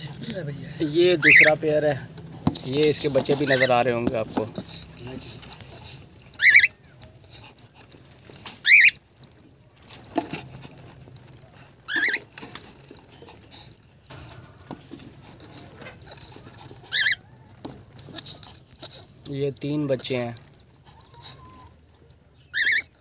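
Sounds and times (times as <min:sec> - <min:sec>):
cockatiels shrill calls: 0:05.2 - 0:06.8, 0:08.6 - 0:09.0, 0:11.9 - 0:12.3, 0:16.8 - 0:17.4, 0:20.7 - 0:21.8, 0:22.4 - 0:23.0.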